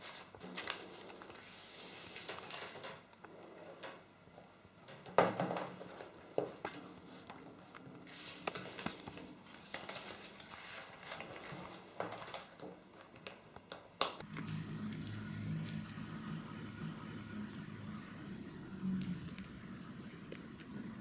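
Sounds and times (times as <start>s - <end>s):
low steady hum: 14.2s - 21.0s.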